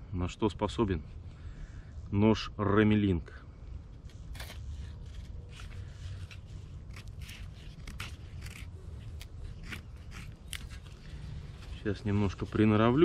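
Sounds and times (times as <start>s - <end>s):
knife shaving wood: 4.1s - 13.0s.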